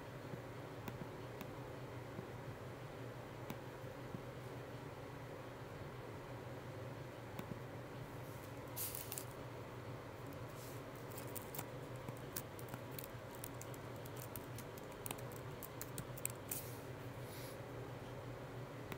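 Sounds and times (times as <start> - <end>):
low steady hum: 0.0 - 18.9
computer keyboard typing: 11.0 - 16.6.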